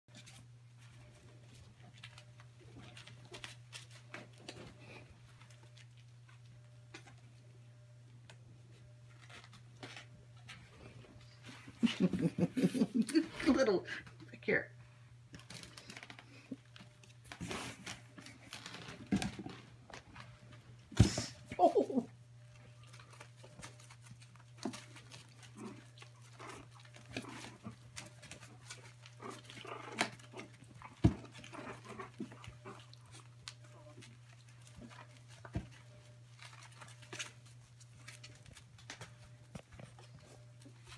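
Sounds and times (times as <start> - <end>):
puppy paws pattering on pads: 0.1 - 7.6, 8.3 - 14.4, 15.3 - 40.9
puppies grunting and squeaking: 21.2 - 38.9.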